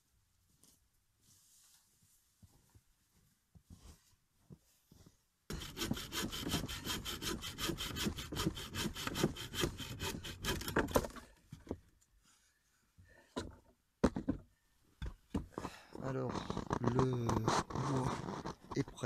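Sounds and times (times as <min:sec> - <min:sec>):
hand saw cutting wood: 0:05.5 - 0:11.3, 0:16.1 - 0:19.0.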